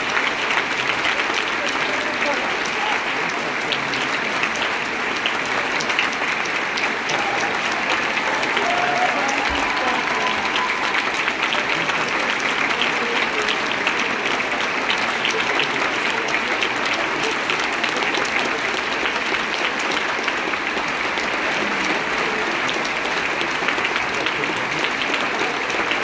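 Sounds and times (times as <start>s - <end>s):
audience applauding: 0.0s - 26.0s.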